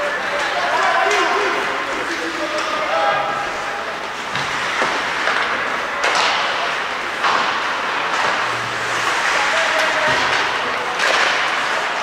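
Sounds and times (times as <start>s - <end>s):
skates scraping ice: 0.0s - 12.0s.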